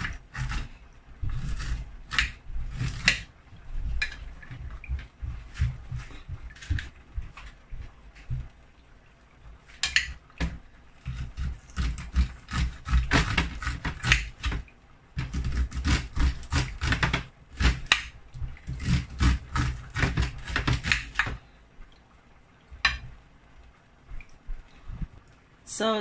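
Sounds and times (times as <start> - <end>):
knife cutting corn kernels: 11.1 - 14.6.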